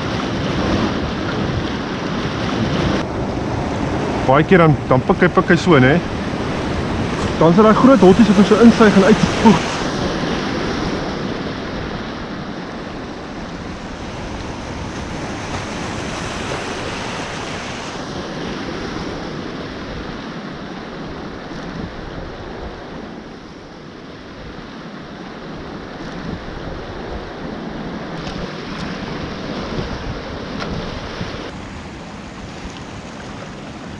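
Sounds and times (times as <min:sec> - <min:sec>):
sea swell rushing over rocks: 0:00.0 - 0:20.3
wind buffeting microphone: 0:00.0 - 0:33.9.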